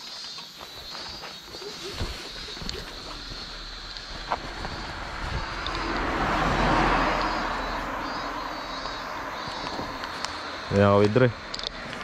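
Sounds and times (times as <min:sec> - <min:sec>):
vehicle passing on road: 0:02.3 - 0:12.0
wind on microphone: 0:04.1 - 0:07.4.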